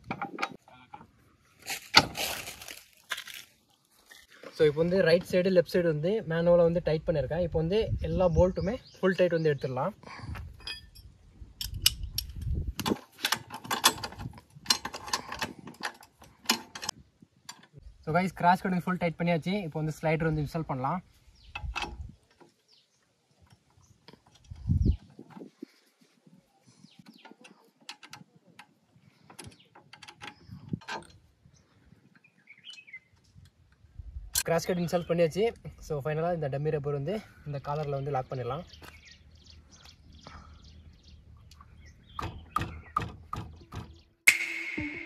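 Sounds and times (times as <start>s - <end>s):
faint metallic clicks and ticks: 26.8s - 31.3s.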